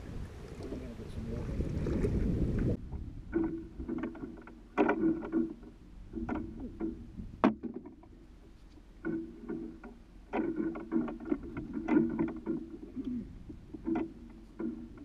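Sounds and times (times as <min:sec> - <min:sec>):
wind rush: 0:00.0 - 0:03.4.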